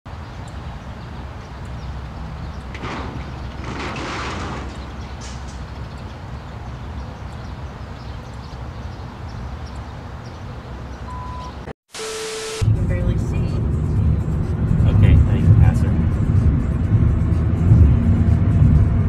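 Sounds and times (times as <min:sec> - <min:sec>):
low rumble: 0:12.6 - 0:19.0.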